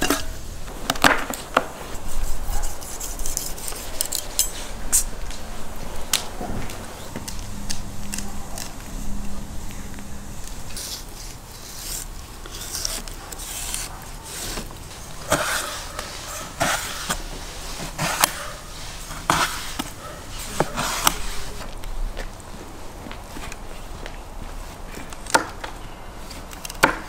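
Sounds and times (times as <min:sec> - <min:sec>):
knife scraping: 0:00.0 - 0:00.4, 0:01.0 - 0:05.4, 0:06.0 - 0:21.7.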